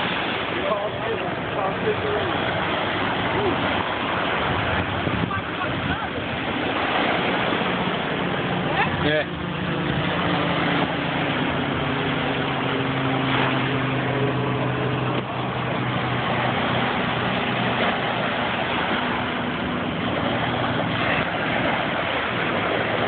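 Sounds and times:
small surf washing up beach: 0:00.0 - 0:23.0
engine idling low hum: 0:07.6 - 0:23.0.

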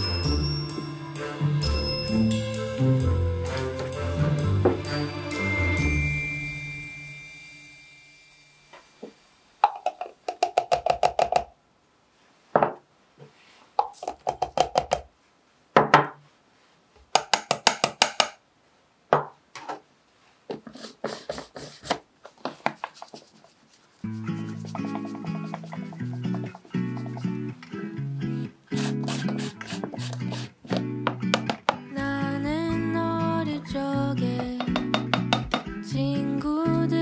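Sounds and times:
ceramic ramekins knocking on plastic cup: 0:09.6 - 0:11.5, 0:13.8 - 0:15.1, 0:24.8 - 0:27.2, 0:31.1 - 0:31.9, 0:34.4 - 0:35.7
plastic cup handled: 0:20.5 - 0:23.6, 0:24.2 - 0:27.4, 0:28.8 - 0:31.9.

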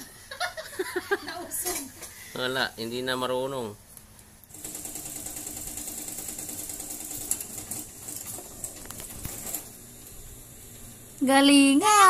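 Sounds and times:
spinning top whirring on tile: 0:04.5 - 0:10.3.

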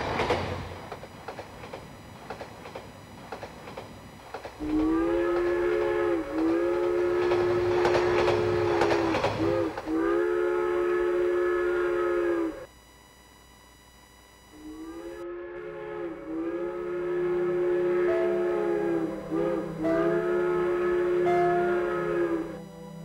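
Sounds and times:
train wheels clicking: 0:00.0 - 0:10.1
steam locomotive whistle: 0:04.6 - 0:12.7, 0:14.6 - 0:23.0.

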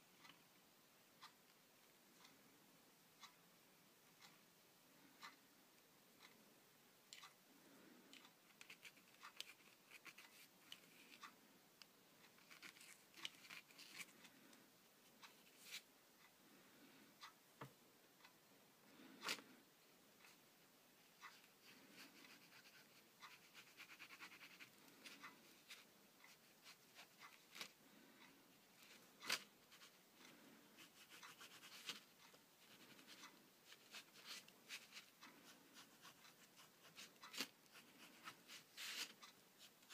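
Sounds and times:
pen scratching on paper: 0:21.6 - 0:25.8, 0:32.7 - 0:39.9.

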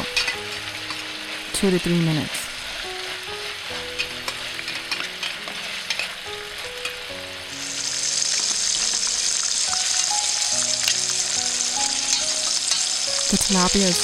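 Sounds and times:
fish deep-frying in hot oil: 0:00.0 - 0:14.0
light sizzle: 0:00.0 - 0:14.0.

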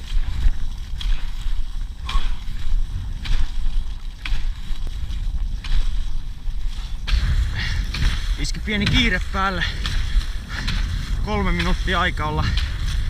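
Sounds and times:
low wind rumble: 0:00.0 - 0:13.0
skis gliding on snow: 0:00.0 - 0:13.0.

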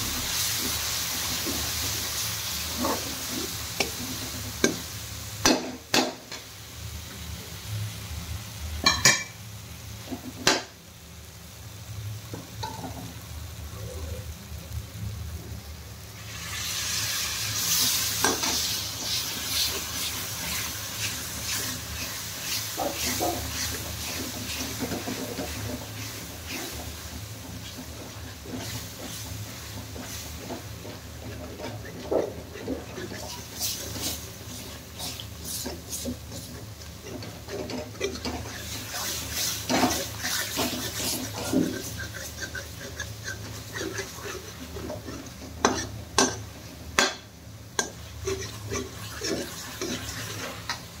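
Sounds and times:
food sizzling in pan: 0:00.0 - 0:51.0
ladle scraping pan: 0:17.6 - 0:47.1, 0:47.8 - 0:50.9.

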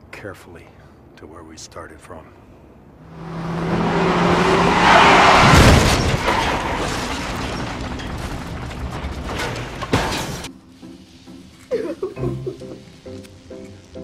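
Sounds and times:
debris clattering: 0:04.4 - 0:10.5.

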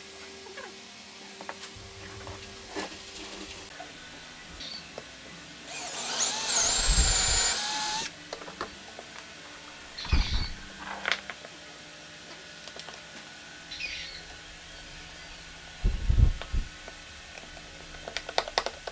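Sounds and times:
cordless drill boring through wood: 0:05.6 - 0:08.1.

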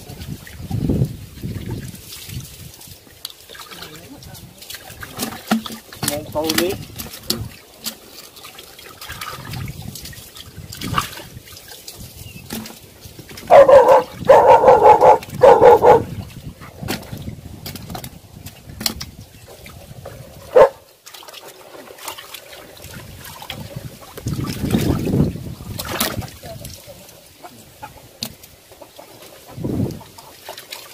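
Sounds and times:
water sloshing and splashing: 0:00.0 - 0:30.9
dog barking: 0:13.5 - 0:16.1, 0:20.5 - 0:20.8.

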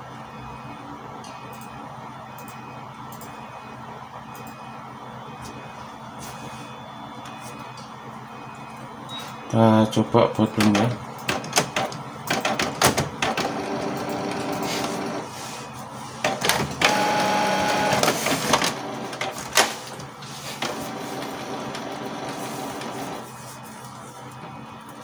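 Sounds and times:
printer motor and gears whirring: 0:11.2 - 0:25.0.

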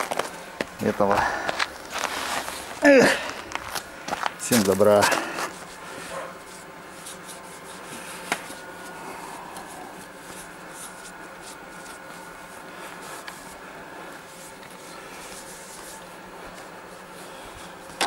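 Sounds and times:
cloth rag wiping chrome: 0:05.6 - 0:17.7.

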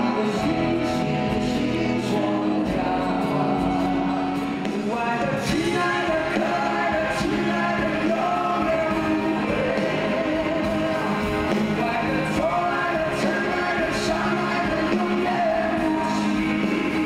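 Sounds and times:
acoustic guitar: 0:00.0 - 0:17.0
electric guitar: 0:00.0 - 0:17.0
male vocal duo singing: 0:00.0 - 0:17.0.

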